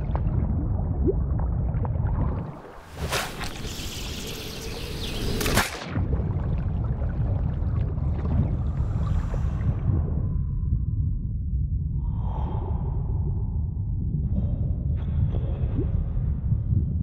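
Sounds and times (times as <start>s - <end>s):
muffled underwater rumble: 0.0s - 2.9s, 5.9s - 17.0s
water splashing and fizzing: 2.3s - 8.3s.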